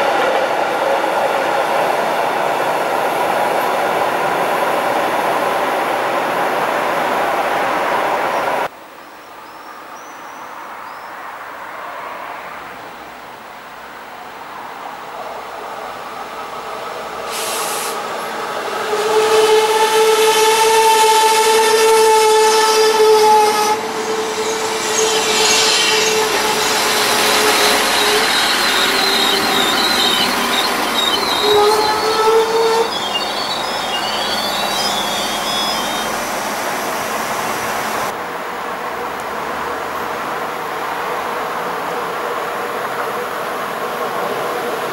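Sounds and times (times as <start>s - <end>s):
railbus running: 0.0s - 8.7s, 9.8s - 44.9s
wheels and brakes squealing: 17.3s - 38.1s
long steady high tone: 18.2s - 38.1s.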